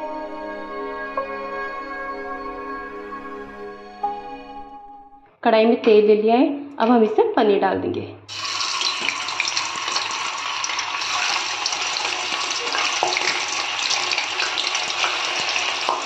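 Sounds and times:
cheese sizzling in hot oil: 8.3 - 16.0.

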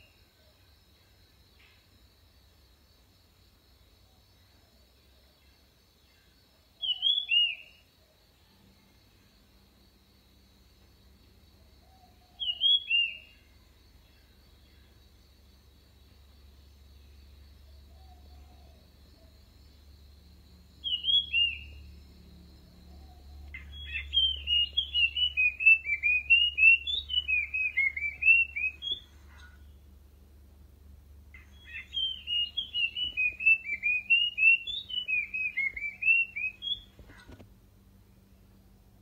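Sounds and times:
bird singing whistled notes: 6.8 - 7.9, 11.9 - 13.5, 20.8 - 29.6, 31.4 - 37.3.

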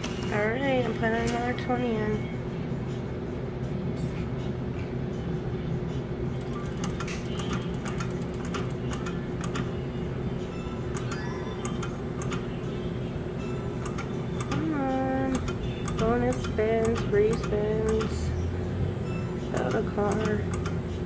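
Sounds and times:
rapid electronic ticks: 6.4 - 9.7.

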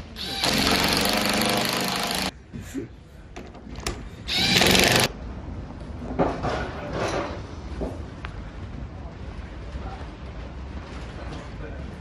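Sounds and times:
electric drill boring into wood: 0.2 - 2.3, 4.3 - 5.1.

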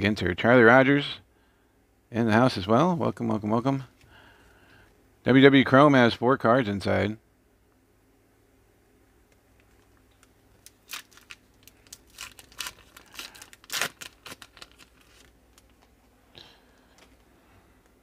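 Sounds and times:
foil wrapper tearing and crinkling: 10.2 - 15.9.

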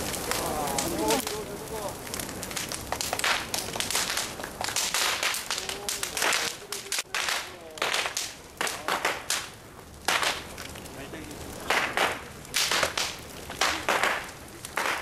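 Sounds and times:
bonfire burning: 0.0 - 15.0
burning wood cracking and popping: 0.0 - 15.0.

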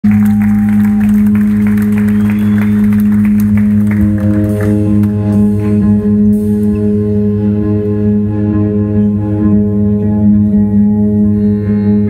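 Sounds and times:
audience clapping: 0.0 - 5.7
electric guitar drone: 0.0 - 12.0
sustained guitar notes: 0.1 - 12.0.

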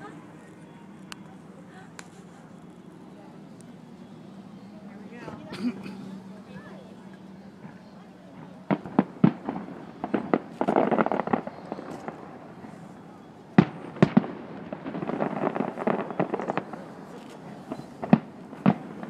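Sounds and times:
fireworks crackling: 0.0 - 19.0
firework shells bursting: 8.3 - 13.0.

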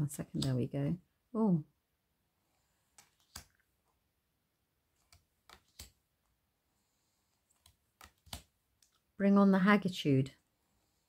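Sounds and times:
cards flipped onto a pile: 2.9 - 3.6, 5.0 - 6.0, 7.5 - 9.0.

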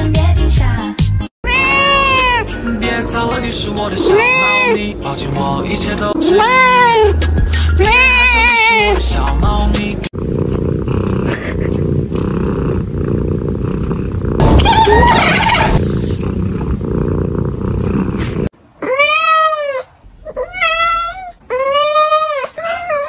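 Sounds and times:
kitten trill: 1.4 - 2.6, 3.7 - 4.9, 6.0 - 7.2, 7.8 - 9.1, 14.4 - 16.1
kitten meowing: 1.5 - 2.4, 4.0 - 4.8, 6.2 - 7.2, 7.8 - 9.0, 14.4 - 15.8, 18.8 - 23.0
kitten purring: 10.2 - 18.5.

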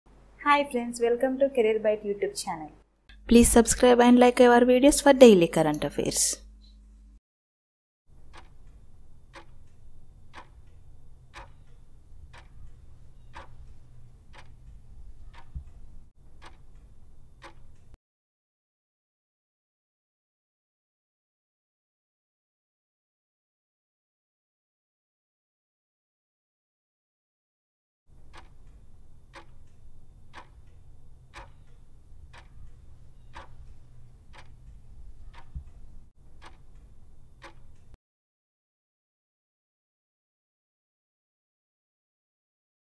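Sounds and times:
low steady hum: 3.1 - 7.2, 8.2 - 18.0, 28.1 - 38.0
clock ticking: 8.2 - 18.0, 28.1 - 38.0.

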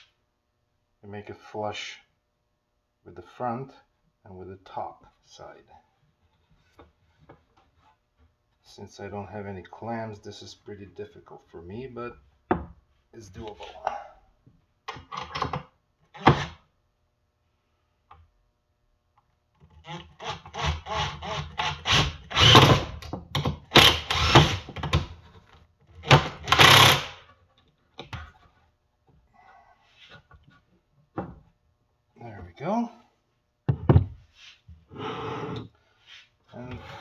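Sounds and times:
cordless drill driving screws: 19.9 - 22.9, 23.7 - 24.8, 26.0 - 27.2.

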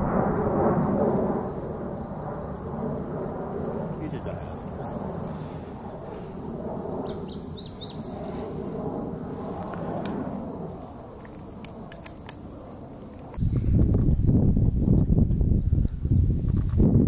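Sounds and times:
bird singing: 0.3 - 13.6.

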